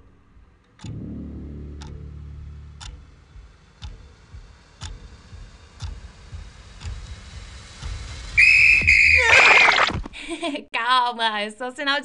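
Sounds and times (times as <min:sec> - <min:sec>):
faint ticking: 0:00.6 - 0:08.9
shrill signal whistle blast: 0:08.4 - 0:09.8.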